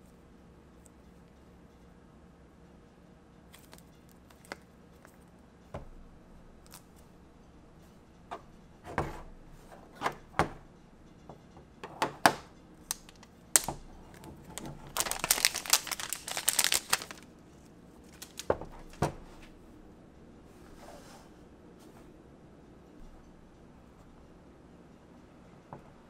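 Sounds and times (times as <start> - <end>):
crinkling packaging: 12.8 - 19.0.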